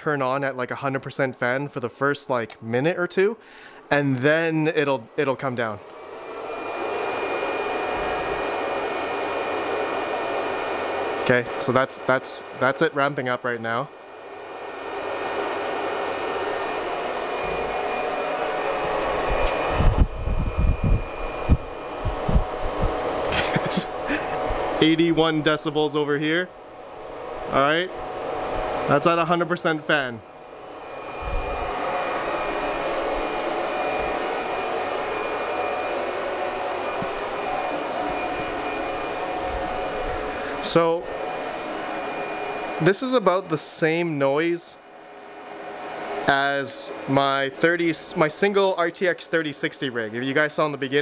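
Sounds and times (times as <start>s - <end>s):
cooling fans rushing air: 1.2s - 51.0s
wind rumbling on microphone: 19.0s - 23.0s, 31.2s - 31.7s.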